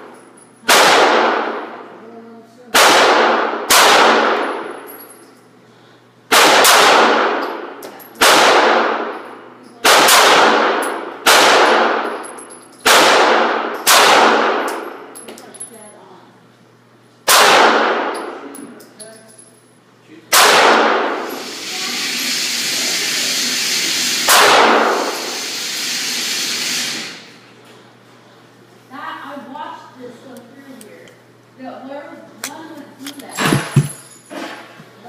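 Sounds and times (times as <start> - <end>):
pistol shots echoing indoors: 0.0 - 1.9, 2.7 - 5.0, 6.3 - 15.2, 17.2 - 18.5, 20.3 - 21.4, 24.2 - 25.4.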